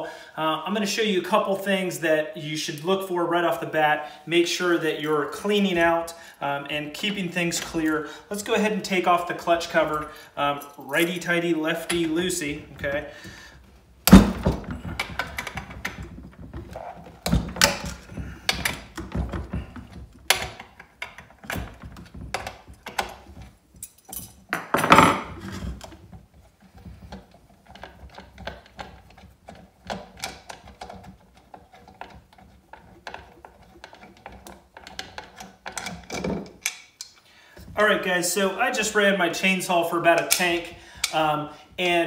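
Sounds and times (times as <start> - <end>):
tools handled on a workbench: 9.6 - 37.8, 40.2 - 41.2.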